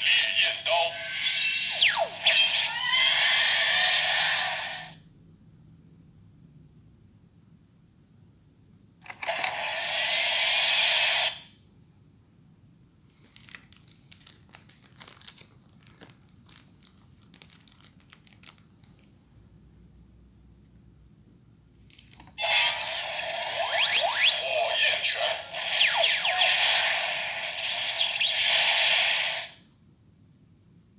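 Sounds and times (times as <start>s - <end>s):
faint crackles and clicks: 13.1s - 19.2s
toy belt hissing rush: 22.4s - 29.6s.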